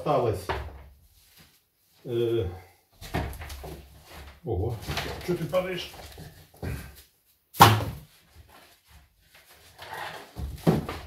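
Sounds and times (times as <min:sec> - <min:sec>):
wooden planks knocking and slapping: 0:03.0 - 0:06.8, 0:07.6 - 0:08.1, 0:09.5 - 0:11.0.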